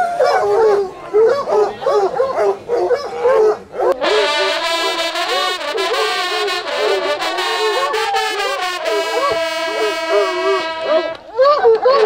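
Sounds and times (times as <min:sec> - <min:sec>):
hounds baying: 0:00.0 - 0:12.0
hunting horns playing chords: 0:04.0 - 0:11.3.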